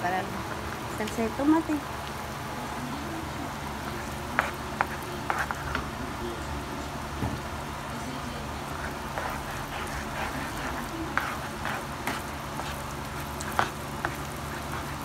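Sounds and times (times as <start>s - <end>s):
spatula scraping a pan: 4.3s - 5.8s, 8.7s - 15.0s
beans sizzling in a pan: 7.4s - 15.0s.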